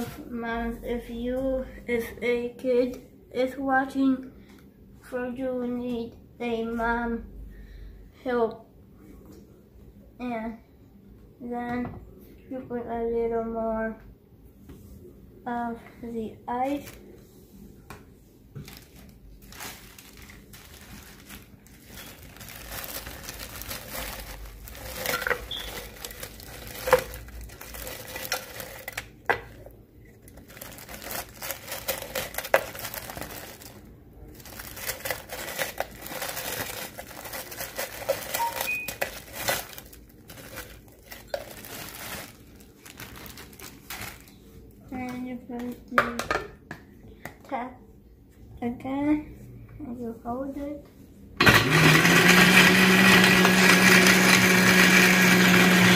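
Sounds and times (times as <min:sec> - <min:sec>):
plastic bag crinkling: 0:18.6 - 0:45.2.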